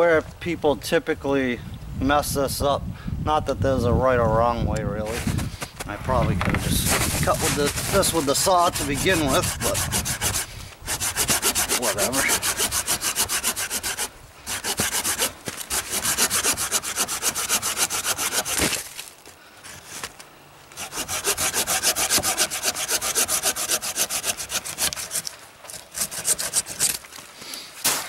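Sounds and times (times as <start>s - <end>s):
hand saw cutting wood: 6.8s - 18.8s, 20.7s - 27.0s.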